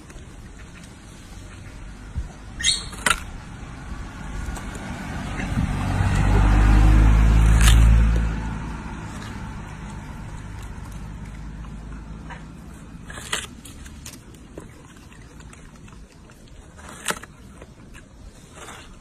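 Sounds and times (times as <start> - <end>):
vehicle engine rumble passing: 3.3 - 16.0.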